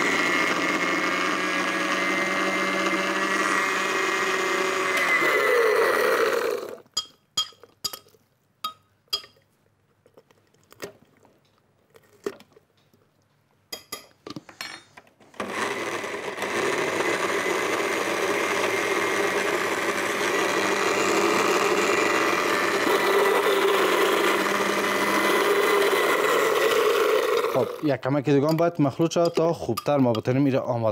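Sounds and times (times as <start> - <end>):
electric blender running: 0.0 - 6.8, 15.4 - 27.9.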